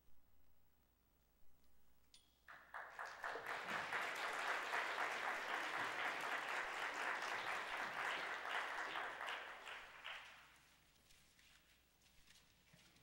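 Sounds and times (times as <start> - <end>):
audience applause: 2.5 - 10.5.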